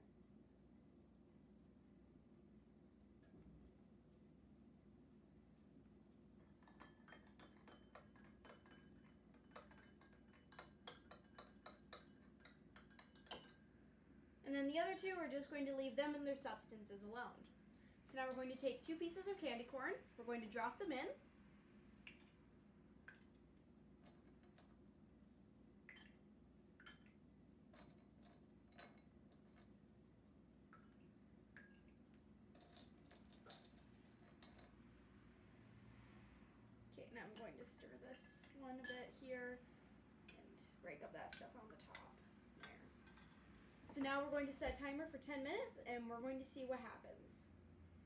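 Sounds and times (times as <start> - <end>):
low room hum: 0.0 - 48.0
metal spoon clinking in glass: 6.6 - 13.6, 38.1 - 39.1.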